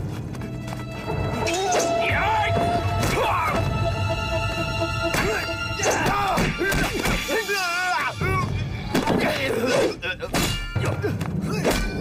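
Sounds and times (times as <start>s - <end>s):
dramatic background music: 0.0s - 12.0s
men shouting: 1.4s - 4.1s, 5.1s - 8.5s.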